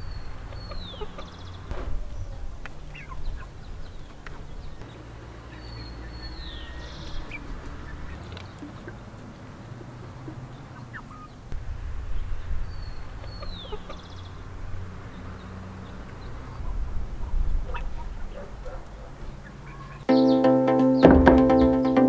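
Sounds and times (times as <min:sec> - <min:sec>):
chickens clucking: 0:00.5 - 0:04.6, 0:07.1 - 0:11.4, 0:13.0 - 0:14.2, 0:16.5 - 0:20.3
high gliding chirp: 0:20.1 - 0:22.0
music: 0:20.1 - 0:22.0.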